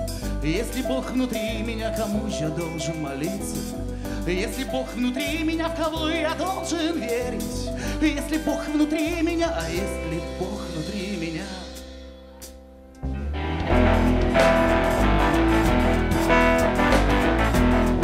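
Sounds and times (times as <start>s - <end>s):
electric upright bass notes: 0.0s - 7.8s, 8.4s - 18.0s
keyboard: 0.0s - 18.0s
man singing with vibrato: 0.4s - 12.0s
full band playing loudly: 13.4s - 18.0s.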